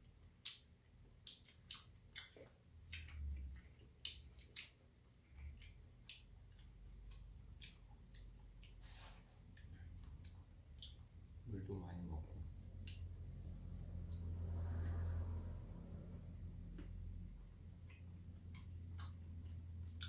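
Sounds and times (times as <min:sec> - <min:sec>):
soft eating sounds: 0:00.0 - 0:20.0.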